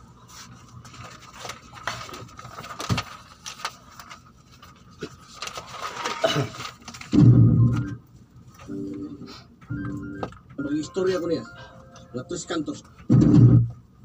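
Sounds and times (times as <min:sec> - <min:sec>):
paper pages rustling: 0:00.2 - 0:08.8.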